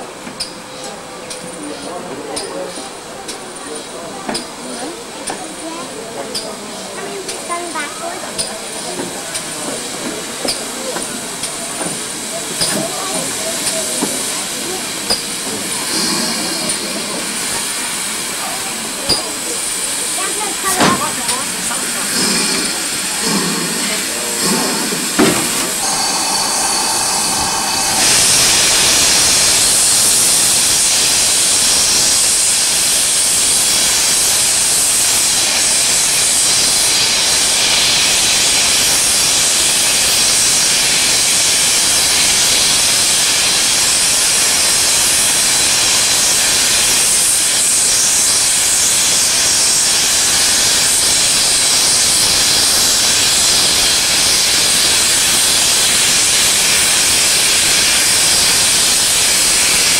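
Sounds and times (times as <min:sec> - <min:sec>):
steam locomotive clanks: 0:00.1 - 0:59.9
steam hissing: 0:07.2 - 0:59.9
short train whistle: 0:25.8 - 0:30.4.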